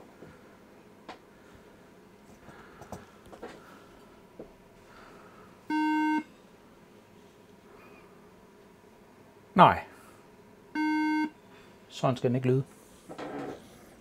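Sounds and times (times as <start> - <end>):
faint clicks and taps: 2.3 - 3.6
computer warning beep: 5.7 - 6.3, 10.8 - 11.4.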